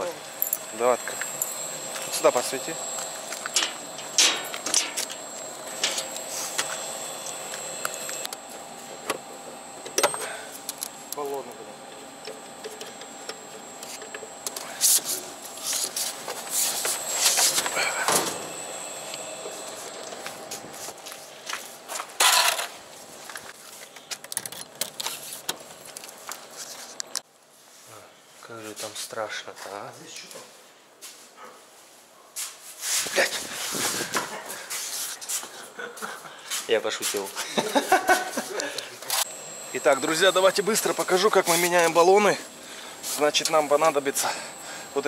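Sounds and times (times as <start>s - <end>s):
metal door clicks and scrapes: 3.6s - 5.0s.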